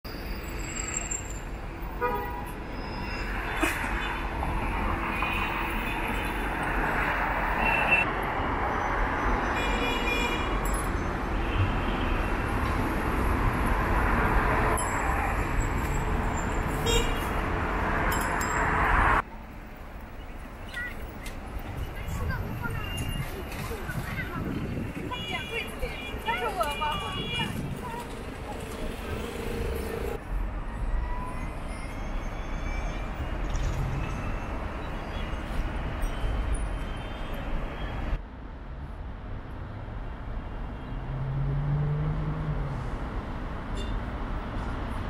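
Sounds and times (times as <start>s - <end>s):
traffic rumble: 0.1s - 45.0s.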